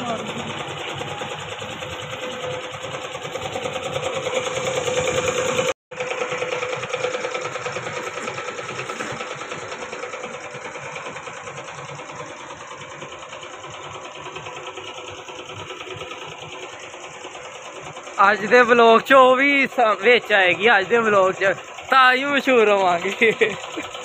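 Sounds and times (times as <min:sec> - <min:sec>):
small machine mechanical chatter: 0:00.0 - 0:24.0.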